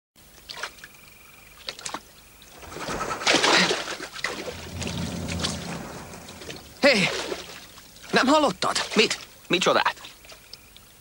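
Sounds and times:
water sloshing and splashing: 1.6 - 9.4
night creatures chirping: 4.4 - 7.8.

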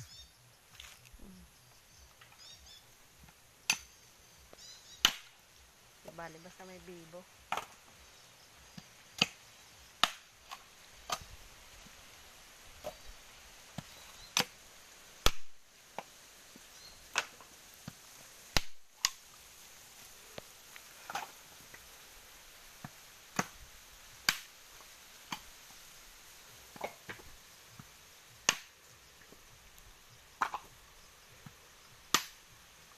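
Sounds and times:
knife striking coconuts: 5.0 - 5.4, 8.8 - 9.4, 10.0 - 11.3, 15.2 - 16.1, 17.1 - 19.2, 23.3 - 23.6, 24.2 - 24.5, 28.4 - 28.8, 32.1 - 32.4.

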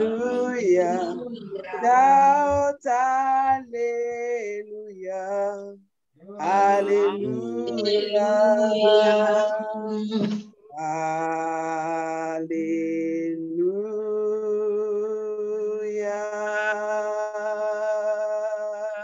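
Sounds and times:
woman singing unaccompanied: 0.0 - 2.8, 6.4 - 10.2.

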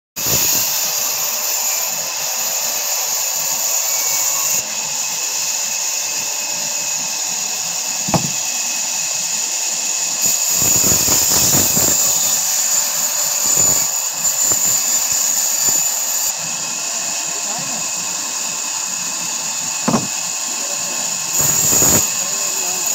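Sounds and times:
band saw cutting log: 0.2 - 22.9
sharp knock: 8.1 - 8.4, 19.8 - 20.1.

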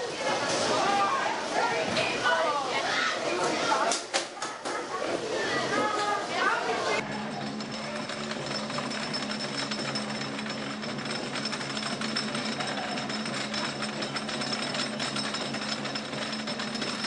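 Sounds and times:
lift chain clattering: 7.0 - 17.0.

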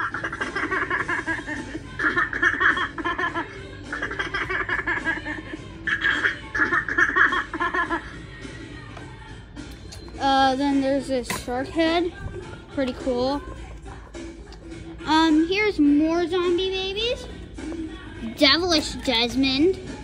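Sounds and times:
childlike laugh: 0.0 - 8.2.

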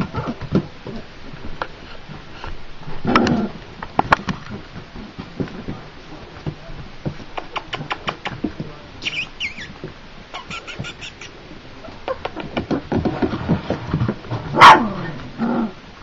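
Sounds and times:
puppies scuffling: 0.0 - 15.2
puppy squeaks: 9.0 - 9.8, 10.4 - 11.3
puppy whimpering: 9.0 - 9.8, 10.4 - 11.3.

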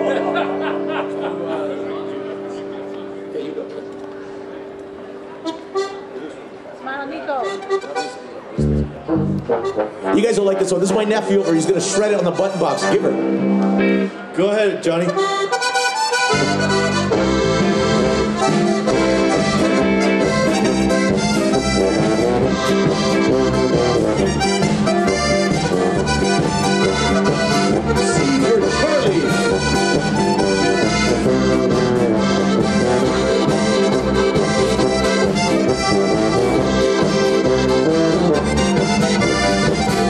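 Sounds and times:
band accompaniment: 0.0 - 40.0
button accordion playing: 5.4 - 6.3, 7.0 - 13.9, 15.0 - 40.0
steady bass pulse: 16.5 - 40.0.

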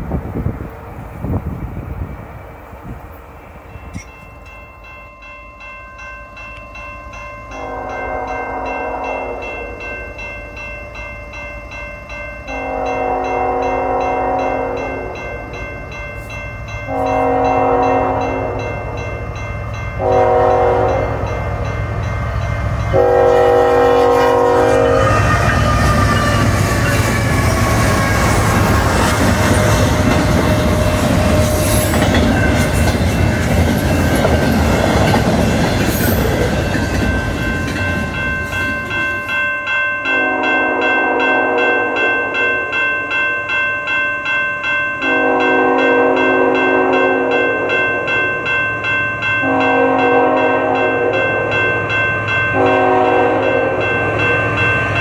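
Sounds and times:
train rushing past on rails: 0.0 - 5.0, 5.6 - 44.0, 44.6 - 55.0
crossing bell ringing: 3.4 - 55.0
train horn blasts: 7.5 - 9.8, 12.5 - 15.3, 16.9 - 19.0, 20.0 - 21.7, 22.8 - 32.5, 40.1 - 42.6, 45.0 - 47.7, 49.4 - 51.5, 52.5 - 54.0.

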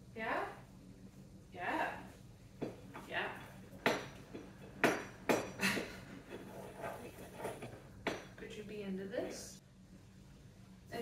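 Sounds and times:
pestle knocking in mortar: 3.8 - 5.6
pestle scraping in mortar: 6.2 - 7.9.

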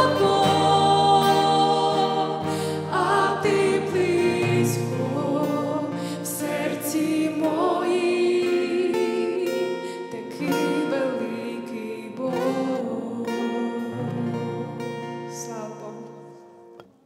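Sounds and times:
acoustic guitar strumming chords: 0.0 - 17.0.

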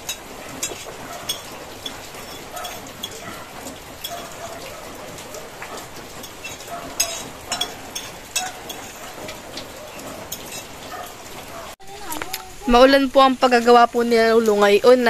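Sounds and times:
utensils clinking on plates: 0.0 - 11.7
rain on a corrugated roof: 0.0 - 15.0.

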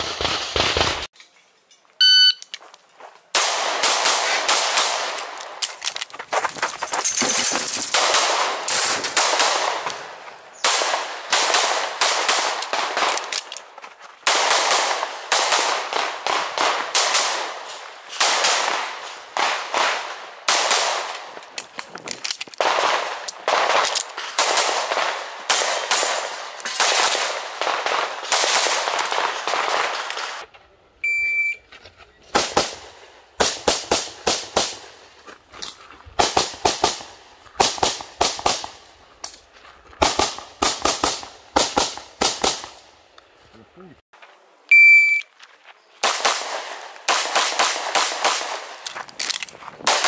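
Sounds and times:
shot timer beep: 2.0 - 2.5, 31.0 - 31.6, 44.7 - 45.3
pistol shots: 3.4 - 5.5, 7.9 - 13.4, 14.2 - 21.4, 22.6 - 30.4, 46.0 - 48.8.

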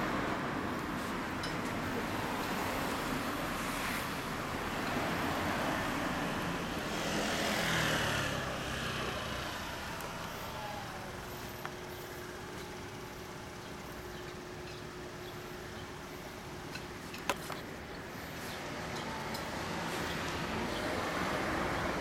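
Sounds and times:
road traffic passing: 0.0 - 22.0
vehicle passing by: 1.9 - 11.5, 18.2 - 22.0.

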